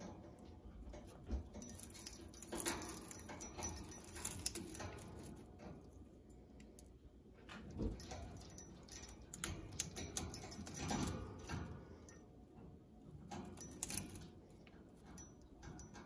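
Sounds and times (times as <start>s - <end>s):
small bell jingling: 1.5s - 5.4s.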